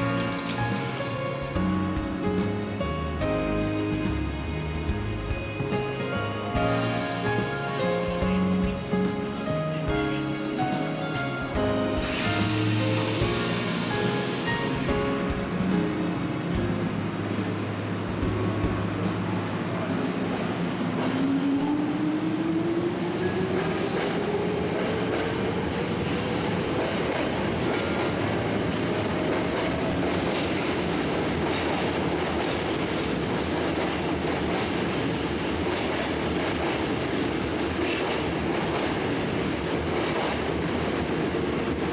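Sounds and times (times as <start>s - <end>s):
rumble of moving train cars: 0.0s - 41.9s
electric train motors whining: 12.0s - 14.9s.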